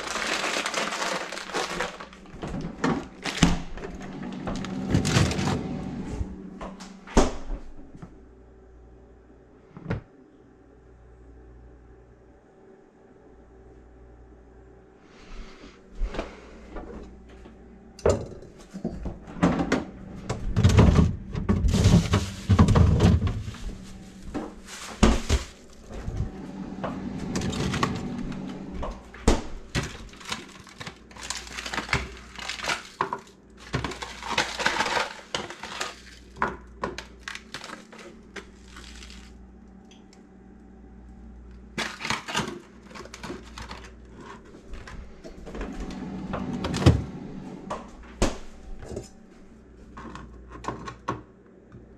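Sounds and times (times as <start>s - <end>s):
plastic packaging crinkling: 0.0s - 5.5s, 21.6s - 26.3s, 29.0s - 39.4s, 41.8s - 44.9s.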